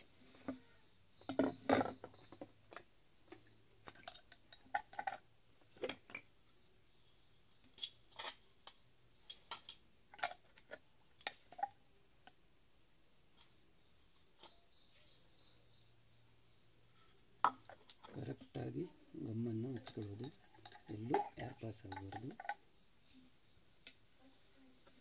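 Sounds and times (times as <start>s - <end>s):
pipe fittings clicking and knocking: 19.4s - 22.6s.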